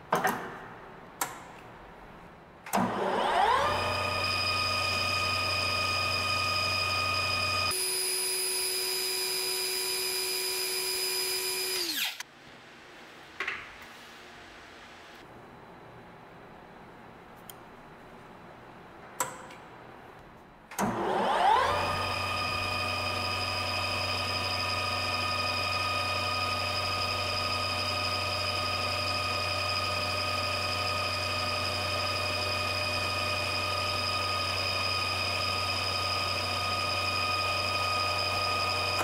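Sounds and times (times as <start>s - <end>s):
lathe spindle and gear whine: 2.9s - 12.2s, 21.0s - 39.0s
drill boring into steel: 3.3s - 12.2s.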